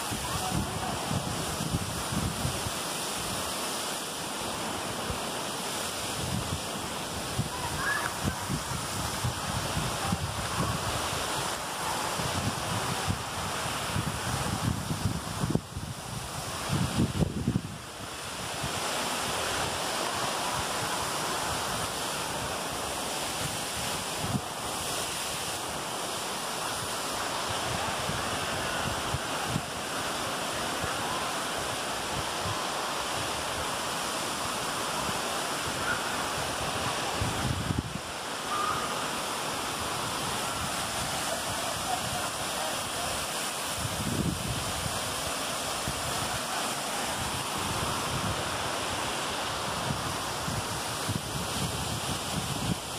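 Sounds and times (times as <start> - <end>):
wind buffeting microphone: 0.0 - 2.8, 6.1 - 11.5, 12.1 - 17.8, 35.8 - 38.8, 39.6 - 52.9
waterfall rushing: 0.0 - 52.9.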